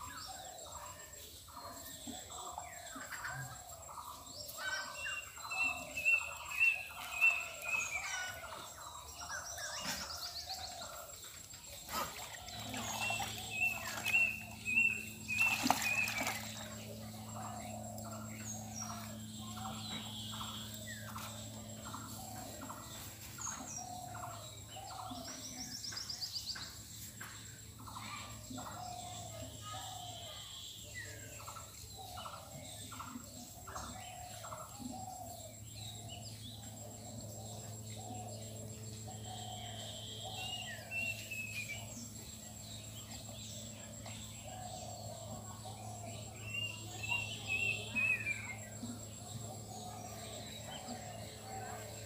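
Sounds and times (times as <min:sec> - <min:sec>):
steady low hum: 0:00.0 - 0:52.0
birds chirping: 0:02.1 - 0:52.0.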